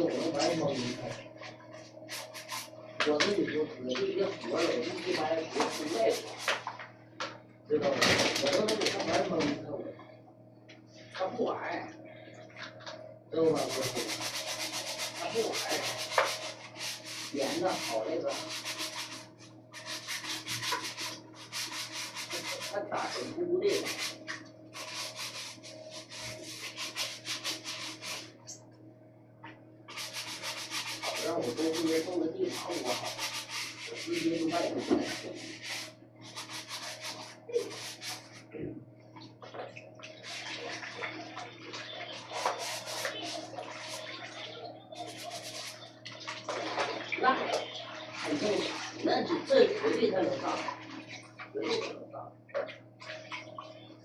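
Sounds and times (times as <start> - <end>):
rapid scraping strokes: 4.5 - 6.6, 13.6 - 24.2, 24.8 - 28.3, 29.9 - 38.4, 42.1 - 44.1, 45.0 - 45.8.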